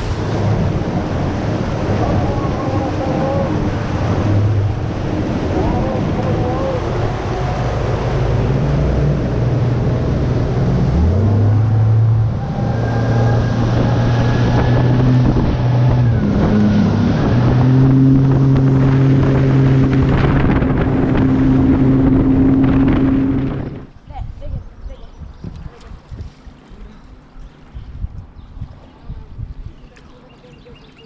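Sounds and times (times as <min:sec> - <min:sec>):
outboard motor running: 0:00.0 - 0:23.9
water rushing past hull: 0:00.0 - 0:31.0
wind buffeting microphone: 0:00.0 - 0:31.0.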